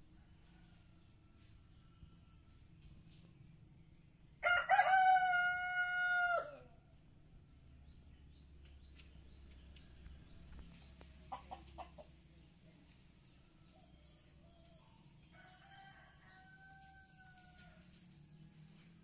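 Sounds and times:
rooster crowing: 4.4s - 6.8s, 15.3s - 17.9s.

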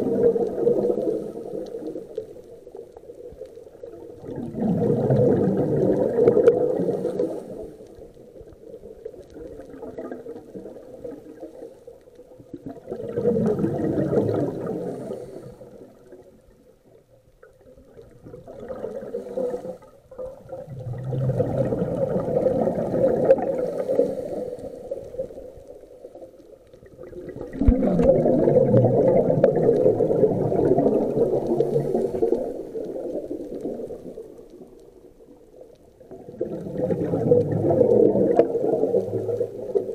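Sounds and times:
underwater bubbles bursting: 0.0s - 39.9s
regulator inhalation: 23.4s - 25.1s.

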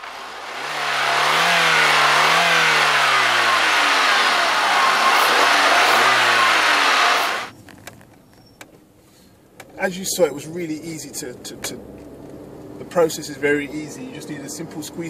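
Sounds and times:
car engine revving: 0.0s - 7.5s.

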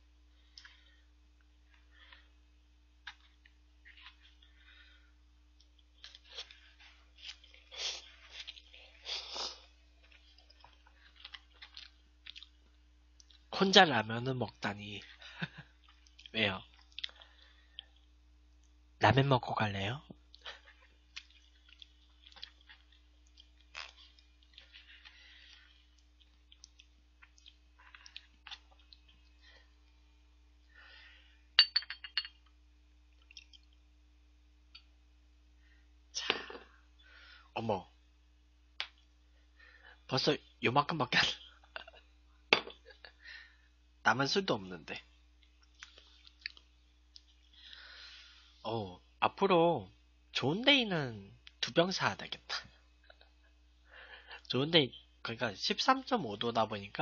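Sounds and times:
glass clinks: 31.6s - 32.4s.

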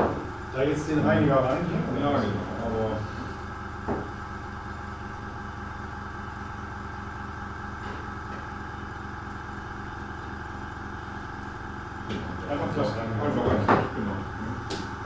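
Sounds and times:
compressor humming: 0.0s - 15.0s.

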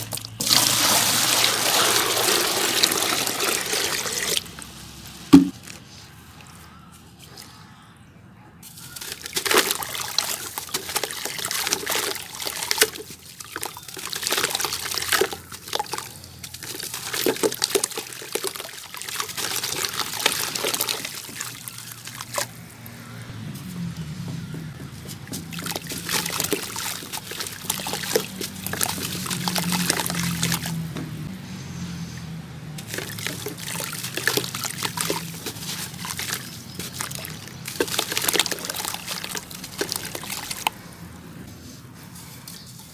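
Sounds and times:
cement squished in water: 5.3s - 5.8s, 8.6s - 22.6s, 25.3s - 30.8s, 32.8s - 40.8s
crumbs splashing into water: 8.6s - 22.6s, 25.3s - 30.8s, 32.8s - 40.8s.

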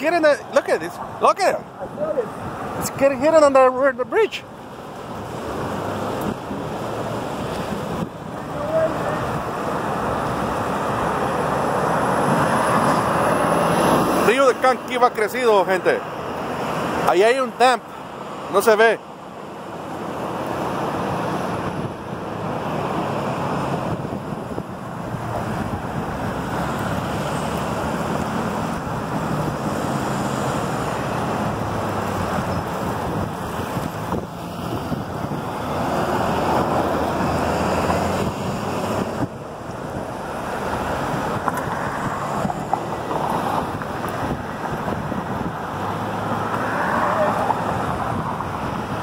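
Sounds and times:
floodwater rushing: 0.0s - 49.0s
wind buffeting microphone: 4.8s - 14.2s, 20.7s - 49.0s.

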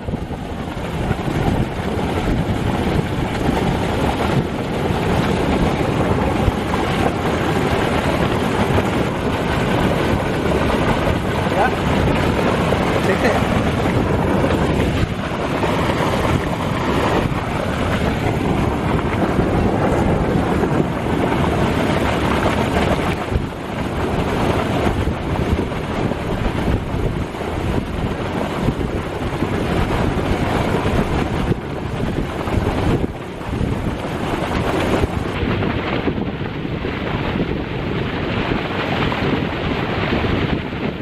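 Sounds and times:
water rushing in a canal: 0.0s - 41.0s
wind buffeting the microphone: 0.0s - 41.0s.

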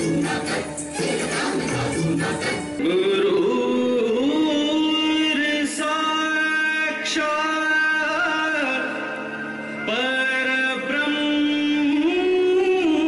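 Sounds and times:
music: 0.0s - 13.0s
person singing long notes: 2.7s - 13.0s.

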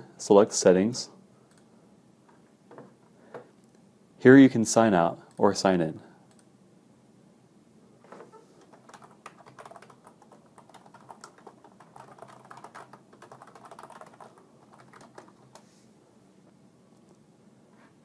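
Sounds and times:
typing on keyboard: 8.6s - 15.6s.

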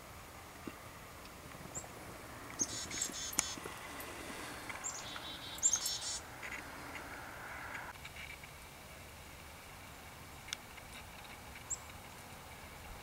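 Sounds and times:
chickadee warning calls: 1.7s - 7.9s.

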